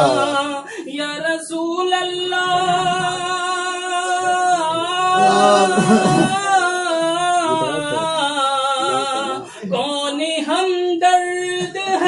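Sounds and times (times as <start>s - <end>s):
several voices singing: 0.0s - 1.3s, 1.9s - 9.8s
person singing long wavering notes: 2.4s - 9.4s.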